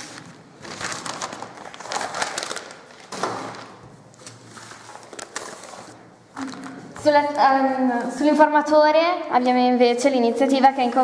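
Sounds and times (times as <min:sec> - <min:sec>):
newspaper rustling and crinkling: 0:00.0 - 0:06.8.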